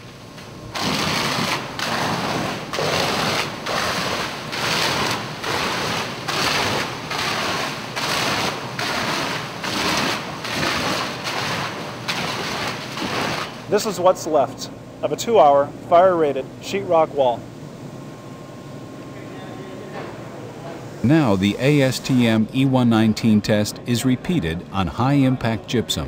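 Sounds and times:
hose spraying water on wall: 0:00.8 - 0:13.7.

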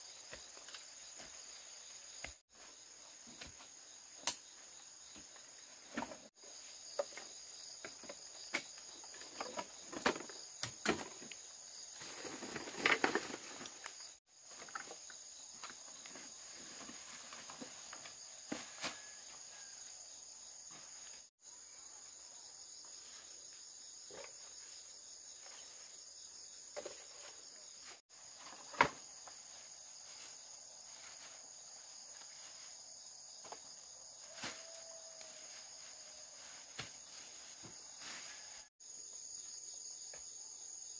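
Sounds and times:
insect chorus drone: 0:00.0 - 0:40.9.

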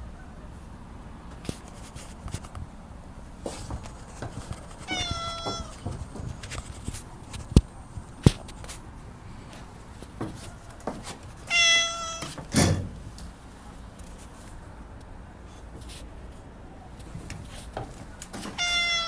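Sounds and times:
cat meowing: 0:04.8 - 0:05.8, 0:11.4 - 0:12.5, 0:18.5 - 0:19.0.

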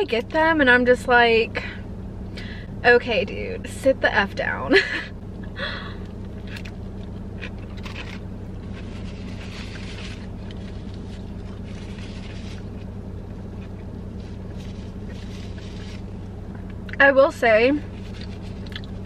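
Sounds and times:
car engine humming: 0:00.0 - 0:19.0
chewing: 0:18.1 - 0:19.0.

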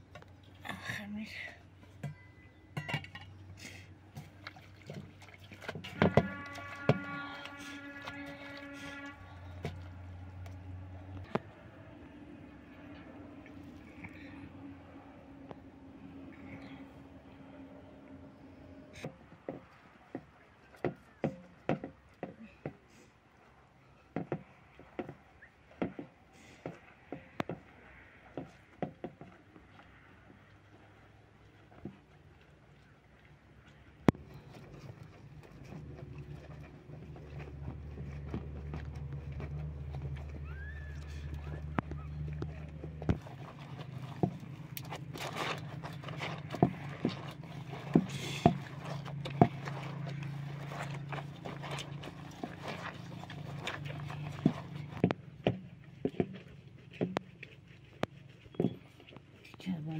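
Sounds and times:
cloth scrubbed in metal basin: 0:03.6 - 0:11.1, 0:34.2 - 0:59.8.

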